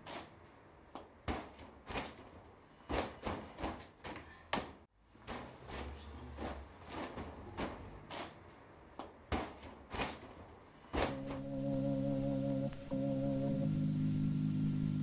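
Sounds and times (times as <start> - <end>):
faint low hum: 11.1 - 15.0.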